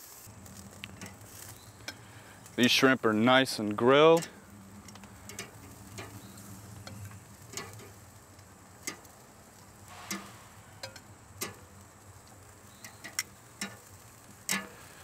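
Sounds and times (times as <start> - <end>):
metal tongs clicking: 4.2 - 6.1.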